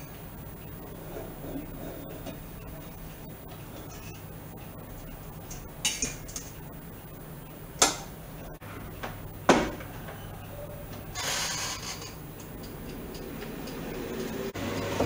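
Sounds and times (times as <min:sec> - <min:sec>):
low appliance hum: 0:00.0 - 0:15.0
air fryer basket knocking: 0:09.0 - 0:10.1.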